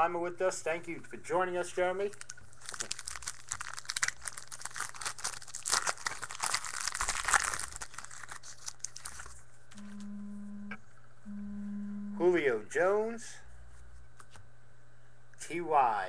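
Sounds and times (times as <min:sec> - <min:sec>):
steady low hum: 0:00.0 - 0:16.0
foil pack crinkling: 0:02.0 - 0:09.5.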